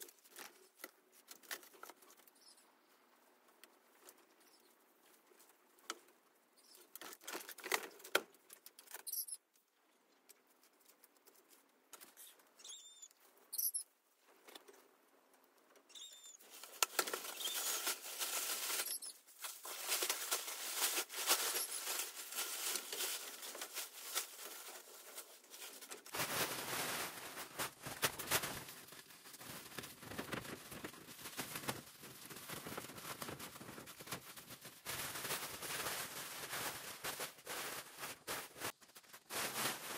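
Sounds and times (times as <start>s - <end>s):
plastic tarp rustling and flapping: 16.4s - 39.9s.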